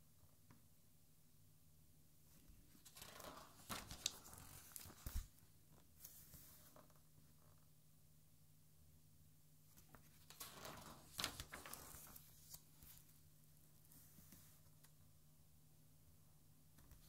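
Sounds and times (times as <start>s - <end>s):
book page turning: 2.8s - 5.4s, 9.8s - 13.1s.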